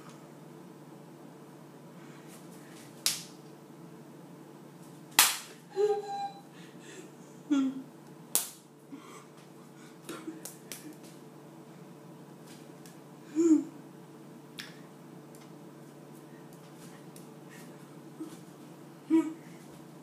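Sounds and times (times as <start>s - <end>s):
hand claps: 3.0s - 3.3s, 5.2s - 5.6s, 8.4s - 8.6s, 10.1s - 11.2s.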